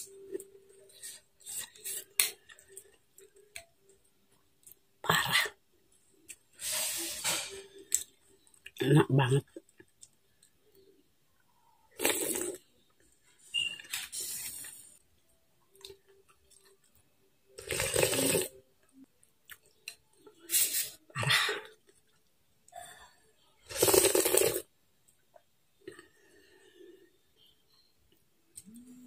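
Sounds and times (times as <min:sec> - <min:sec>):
slurping noodle soup: 0:11.9 - 0:12.6, 0:17.6 - 0:18.6, 0:23.6 - 0:24.7.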